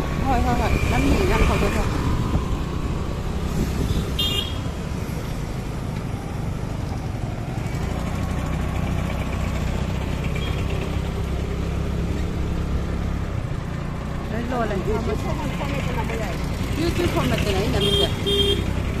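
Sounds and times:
vehicle engine hum: 0:00.0 - 0:19.0
high horn beep: 0:17.8 - 0:18.7.

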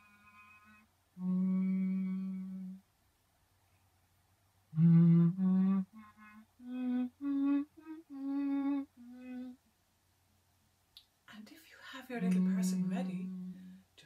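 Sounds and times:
woman humming: 0:00.0 - 0:02.8, 0:04.7 - 0:09.6, 0:12.2 - 0:13.9.

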